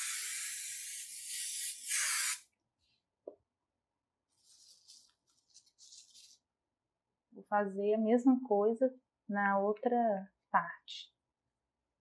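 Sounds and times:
aerosol spray hissing: 0:00.0 - 0:02.4
plastic sheet crinkling: 0:04.4 - 0:06.4.

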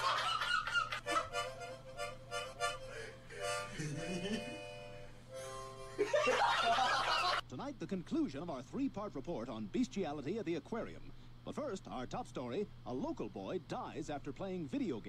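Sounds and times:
harmonica chords: 0:00.0 - 0:06.4.

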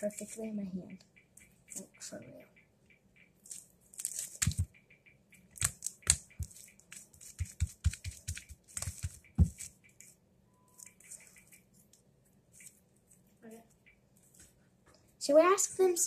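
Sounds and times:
slime clicking and crackling: 0:03.4 - 0:04.8, 0:05.5 - 0:09.7.

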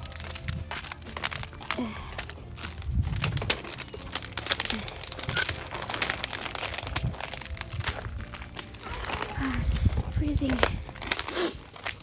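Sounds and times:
footsteps crunching on ice: 0:00.0 - 0:12.0.

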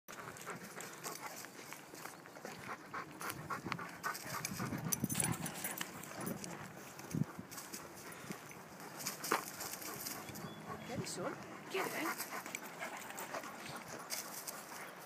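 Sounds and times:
dog panting: 0:00.1 - 0:15.0
footsteps on gravel: 0:00.2 - 0:03.4.

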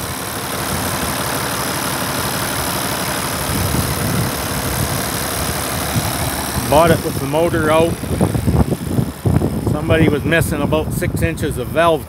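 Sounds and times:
tractor engine idling: 0:00.0 - 0:12.0.

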